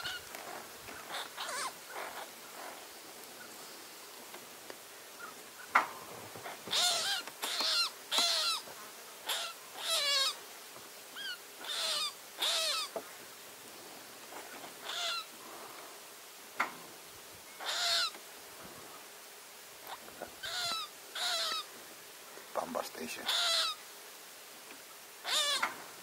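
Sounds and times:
rabbit screaming: 1.1s - 2.2s, 6.7s - 8.6s, 9.2s - 10.4s, 11.2s - 12.9s, 14.8s - 15.3s, 17.6s - 18.2s, 19.9s - 21.7s, 23.2s - 23.8s, 25.2s - 25.8s.

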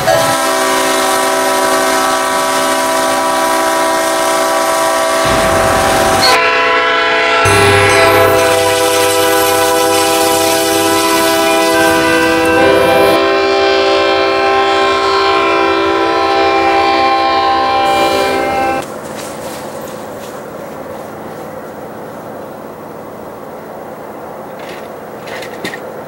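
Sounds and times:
locomotive air horn chords: 0.0s - 18.9s
train rumble: 0.0s - 26.0s.

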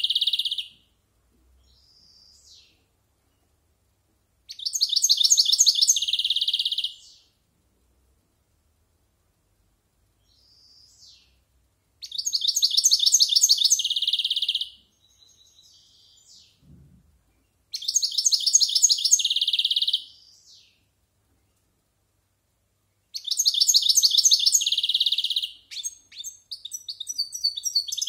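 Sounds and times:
bird twittering and trilling: 0.0s - 0.8s, 1.6s - 2.8s, 4.5s - 7.3s, 10.2s - 11.4s, 12.0s - 16.6s, 17.7s - 20.8s, 23.1s - 28.0s
short low thump: 16.6s - 17.2s.

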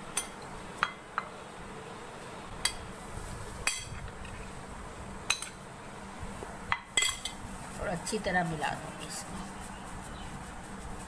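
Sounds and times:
faint steady hum: 0.0s - 11.0s
metal spoon clinking on plate: 7.0s - 7.4s.

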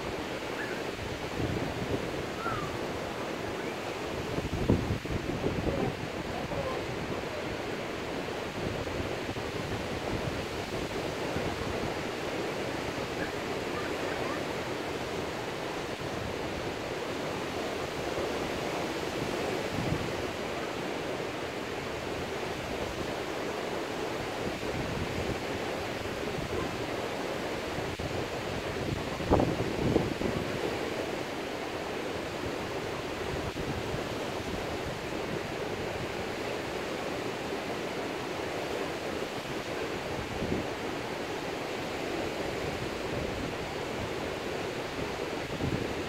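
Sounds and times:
wind on microphone: 0.0s - 20.5s, 24.1s - 31.4s, 39.0s - 46.0s.

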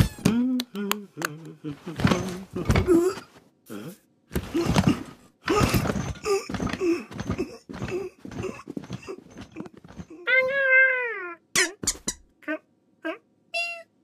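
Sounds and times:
cartoon rustling noises: 1.2s - 3.5s
cartoon knocking noises: 11.6s - 12.3s.

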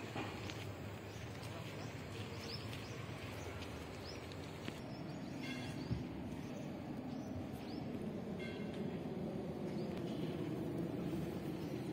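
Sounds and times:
steady background hum: 0.0s - 11.9s
small birds chirping: 0.3s - 11.9s.

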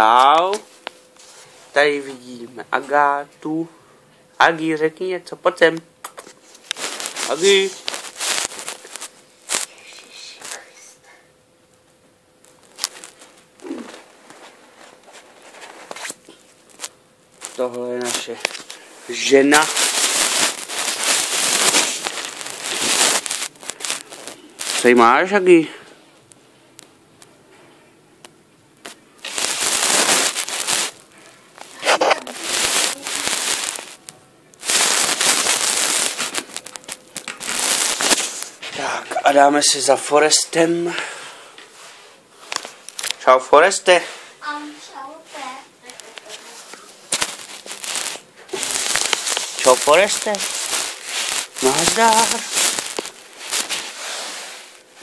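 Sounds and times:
crackling handling noise: 5.6s - 10.7s, 11.7s - 25.0s, 28.2s - 38.7s, 41.7s - 43.2s, 45.8s - 55.0s
soft rustling: 6.2s - 10.9s, 12.4s - 25.0s, 28.8s - 39.4s, 43.9s - 55.0s.

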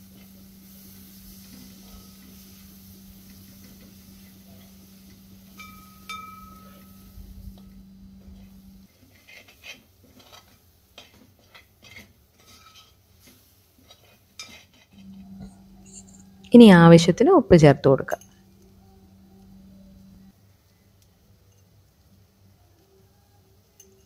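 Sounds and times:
steady low hum: 0.0s - 8.9s, 14.9s - 20.4s
spoon scraping a pot: 8.3s - 16.4s.

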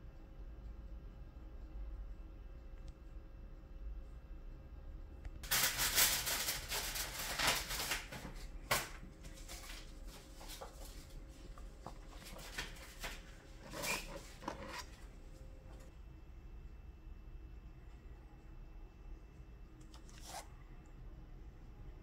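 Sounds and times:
plastic bags crinkling: 5.4s - 11.1s.

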